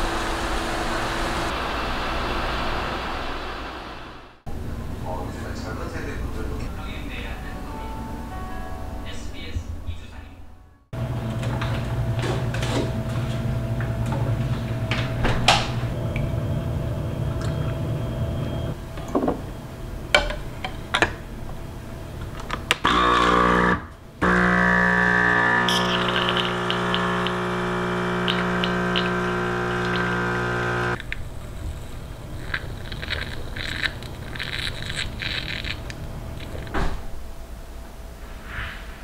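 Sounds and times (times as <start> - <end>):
coffee machine pump humming: 22.8 - 31.0.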